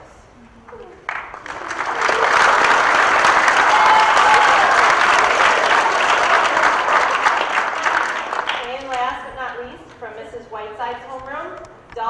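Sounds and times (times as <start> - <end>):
audience clapping: 0.7 - 9.2.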